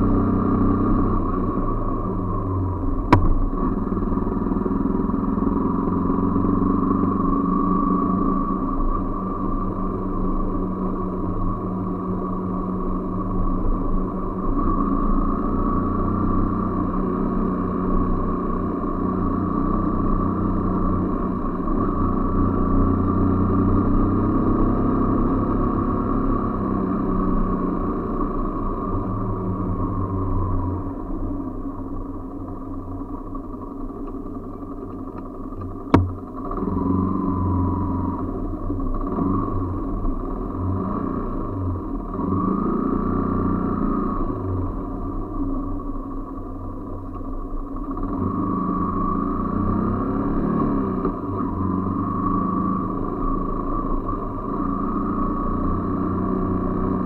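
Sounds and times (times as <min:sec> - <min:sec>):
motorcycle engine running: 0:00.0 - 0:57.0
road and wind noise: 0:00.0 - 0:57.0
motorcycle engine idling: 0:28.6 - 0:36.6
sharp click: 0:35.9 - 0:36.2.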